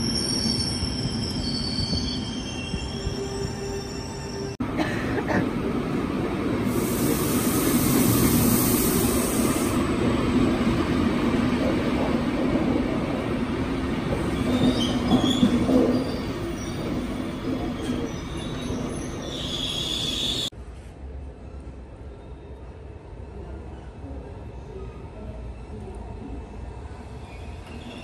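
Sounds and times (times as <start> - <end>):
train brake squeals: 0.0 - 4.5, 17.8 - 20.5, 27.2 - 28.0
train wheels rumbling on rail: 4.6 - 20.5
high hiss: 6.7 - 9.8.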